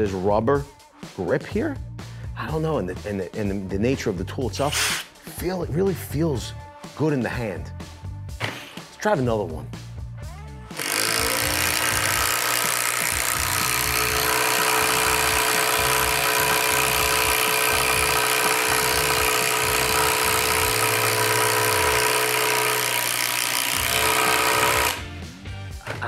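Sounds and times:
impact driver driving screw into wood: 4.7 - 5.1, 10.7 - 25.1.

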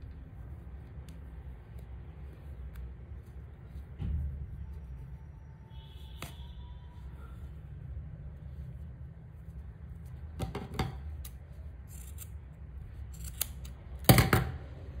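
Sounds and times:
scissors snipping yarn: 0.0 - 4.0, 11.0 - 14.2.

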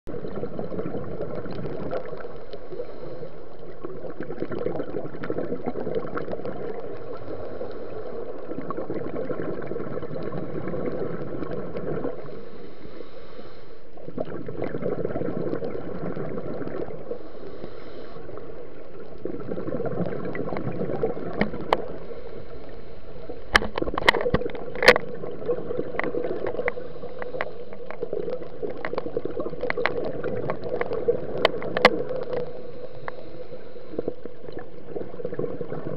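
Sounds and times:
underwater regulator bubbling: 0.1 - 12.4, 14.0 - 35.9
sharp clicks and knocks: 23.5 - 25.2.

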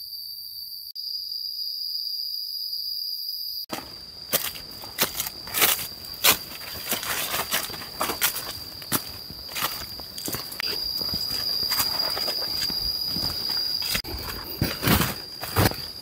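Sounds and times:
insects droning: 0.0 - 16.0
footsteps crunching on forest floor: 3.7 - 16.0.

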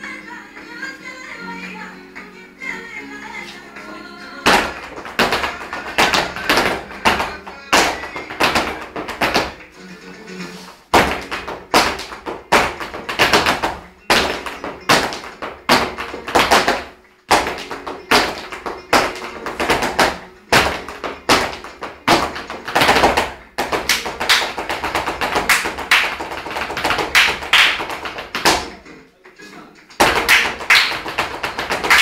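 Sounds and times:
flamenco music: 0.0 - 32.0
heeled shoes stamping on hard floor: 4.4 - 9.6, 10.9 - 28.8, 30.0 - 32.0
hands clapping rhythmically: 4.4 - 9.7, 11.0 - 28.9, 29.9 - 32.0.

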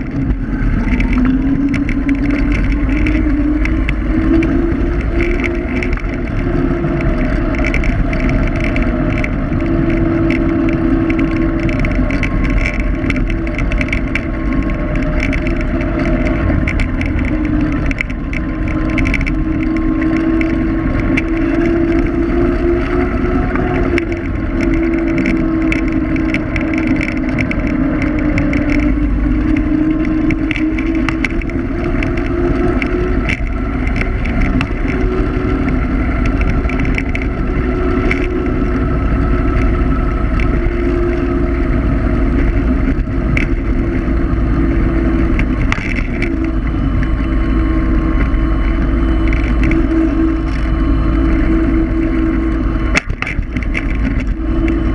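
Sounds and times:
electric scooter motor whine: 0.0 - 54.9
rattling clicks from bumps: 0.0 - 54.9
wind and road noise: 0.0 - 54.9.

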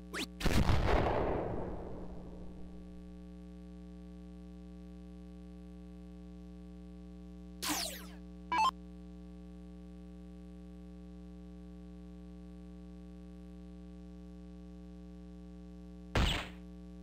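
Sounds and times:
short bright electronic blip: 7.6 - 8.7.

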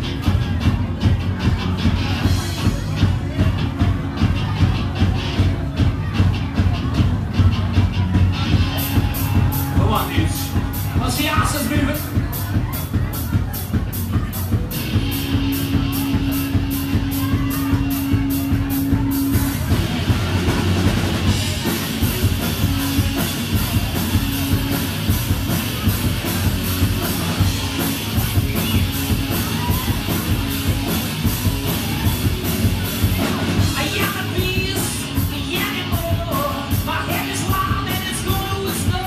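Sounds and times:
live rock band: 0.0 - 39.0.

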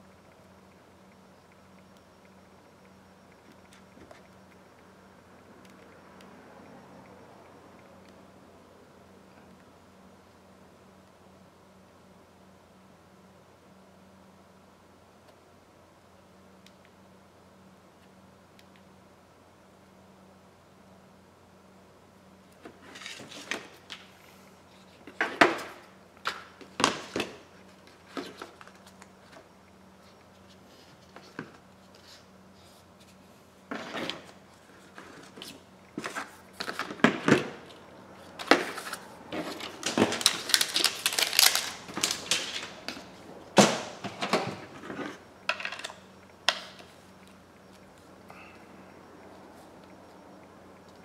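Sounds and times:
plastic rustling: 38.3 - 46.0.

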